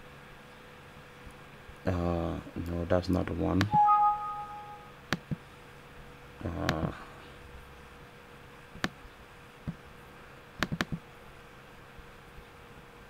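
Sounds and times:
faint steady hum: 0.0s - 13.0s
computer mouse clicks: 10.6s - 11.0s.

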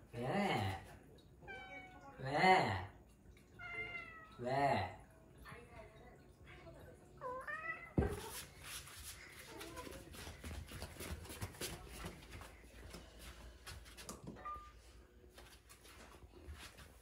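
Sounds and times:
cat meowing: 3.6s - 4.4s.

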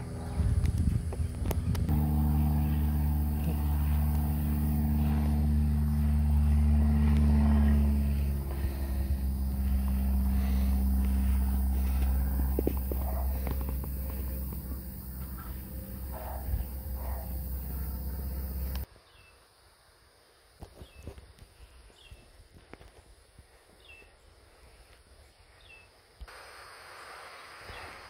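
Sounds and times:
engine humming: 0.0s - 18.9s.

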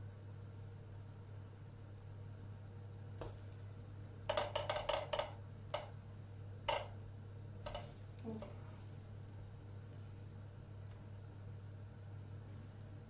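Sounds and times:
low steady hum: 0.0s - 13.0s
spatula tapping frying pan: 4.3s - 6.0s, 6.7s - 7.0s, 7.6s - 8.0s.

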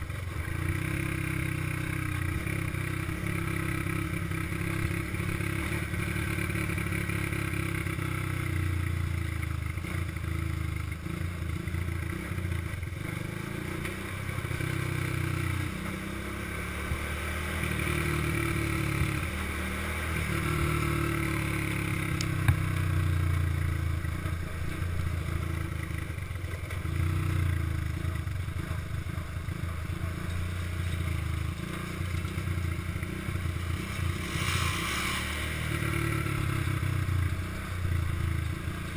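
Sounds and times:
small engine revving: 13.0s - 22.9s, 26.8s - 38.9s.

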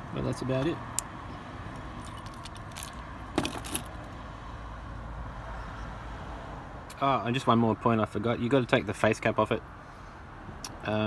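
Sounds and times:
car keys jingling: 1.8s - 4.1s.

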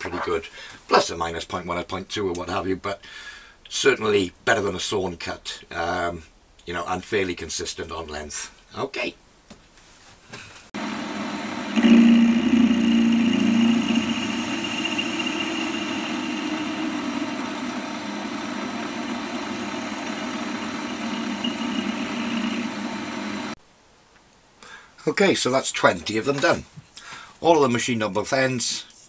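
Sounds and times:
lathe motor and spindle hum: 10.8s - 23.6s
lathe tool cutting metal: 10.8s - 23.6s.

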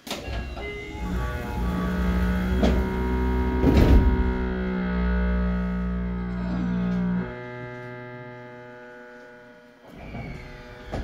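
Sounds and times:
electric train motors whining: 0.0s - 11.0s
low hum: 0.0s - 11.0s
rough rumble: 0.6s - 7.4s.

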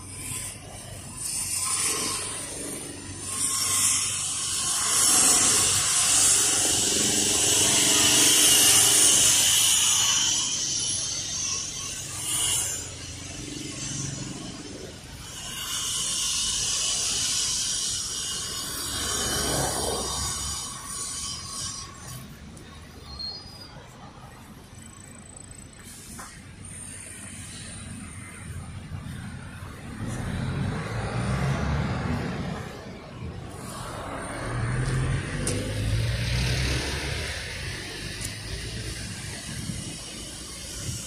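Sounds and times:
tyres hissing on asphalt: 0.0s - 23.8s, 33.5s - 41.0s
deep traffic rumble: 0.0s - 41.0s.

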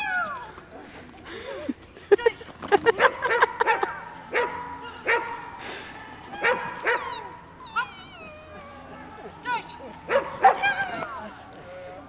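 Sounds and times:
small dog barking: 3.0s - 5.6s, 6.4s - 8.0s, 10.0s - 11.1s
dog yelping: 3.0s - 12.0s.

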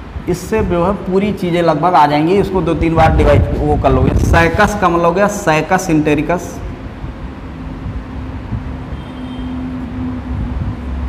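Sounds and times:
low background rumble: 0.0s - 8.8s.

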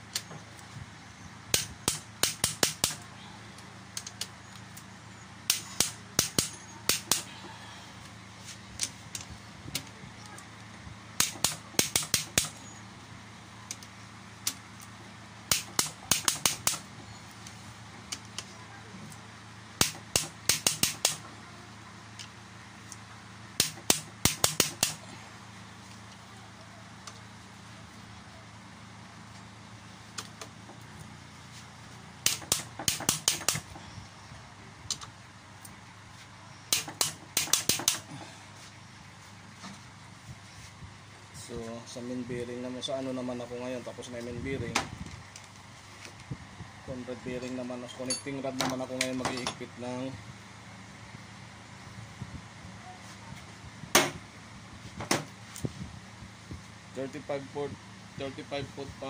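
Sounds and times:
steady low hum: 0.0s - 59.0s.

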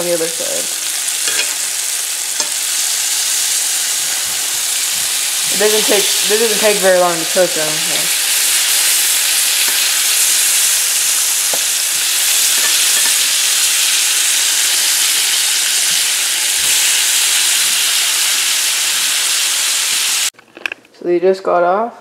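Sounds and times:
steaks sizzling in butter: 0.0s - 20.3s.

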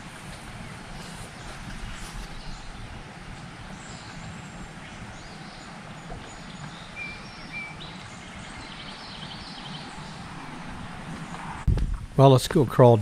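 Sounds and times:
bird chirps: 3.8s - 11.7s
steady low rumble: 9.6s - 12.2s.

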